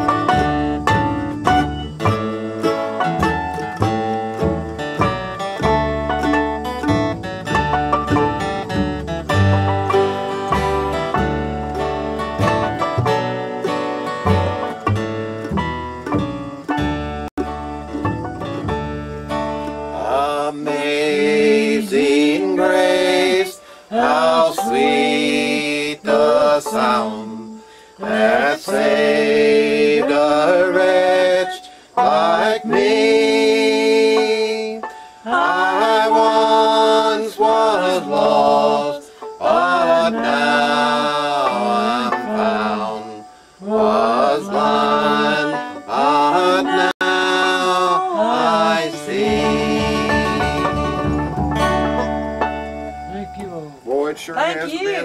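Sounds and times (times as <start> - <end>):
acoustic guitar: 0.0 - 55.0
banjo: 0.0 - 55.0
person singing: 19.9 - 51.2.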